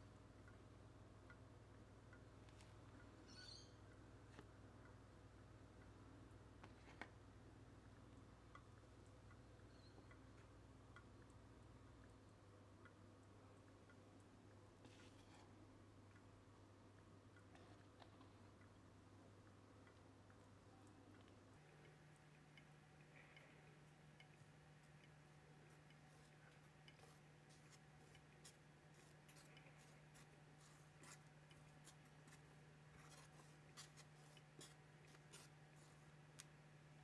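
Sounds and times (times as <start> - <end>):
low steady hum: 0.0 - 37.0
skewer scratching in cake batter: 14.8 - 15.5, 24.6 - 36.2
faint ticks: 16.9 - 36.6.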